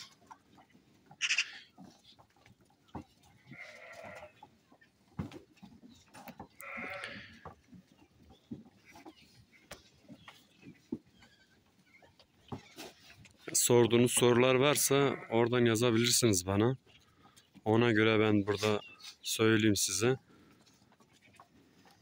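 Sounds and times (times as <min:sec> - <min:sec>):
lambs bleating: 0:01.2 - 0:01.7, 0:03.4 - 0:04.4, 0:06.6 - 0:07.4, 0:14.7 - 0:15.4.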